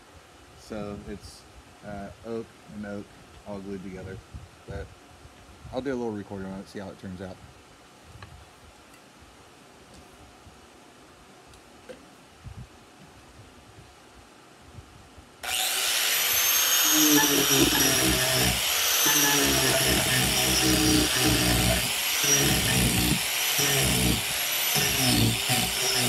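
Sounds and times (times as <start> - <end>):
angle grinder carving wood: 15.4 - 26.0.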